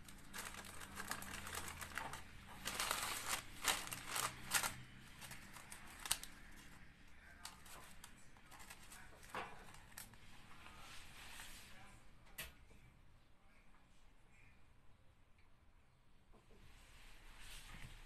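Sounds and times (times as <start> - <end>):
parchment paper crinkling: 0.0 - 10.3.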